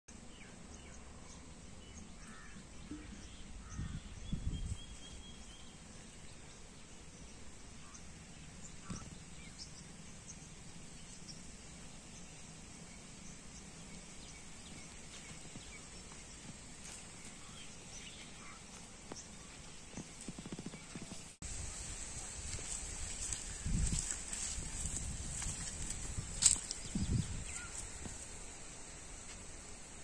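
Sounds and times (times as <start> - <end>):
footsteps through dry grass: 14.6 - 29.7
faint bird calls: 27.4 - 28.0.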